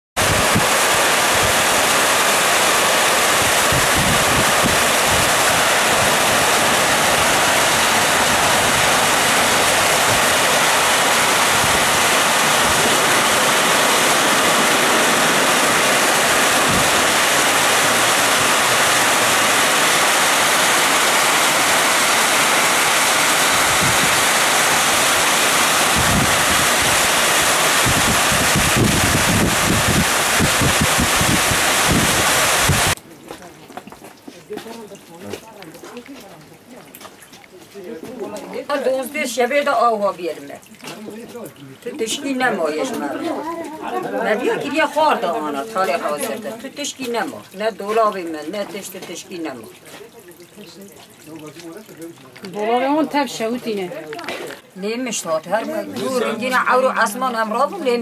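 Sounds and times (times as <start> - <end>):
wind gusts on microphone: 0.2 - 33.0
flood water rushing over rocks: 0.2 - 33.1, 33.8 - 58.0.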